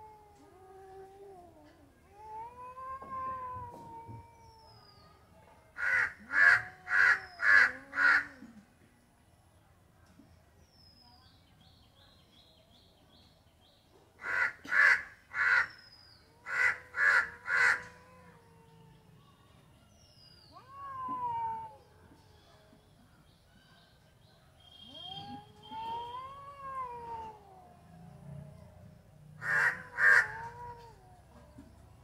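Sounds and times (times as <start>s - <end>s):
cat meowing: 0.1s - 4.6s, 20.4s - 22.1s, 24.9s - 28.1s, 29.4s - 31.5s
crows cawing: 5.8s - 8.3s, 14.2s - 15.7s, 29.4s - 30.4s.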